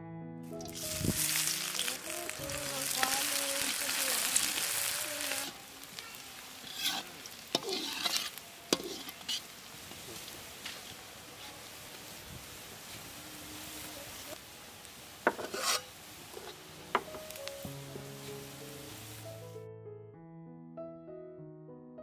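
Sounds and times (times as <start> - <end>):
onions sizzling in hot oil: 0.5 - 19.5
spatula scraping a wok: 3.7 - 11.7, 15.2 - 16.6.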